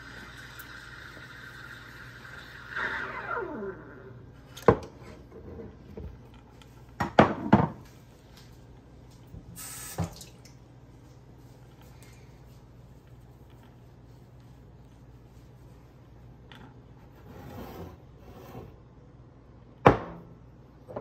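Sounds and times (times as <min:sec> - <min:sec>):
brief high hiss: 0:09.6 - 0:10.1.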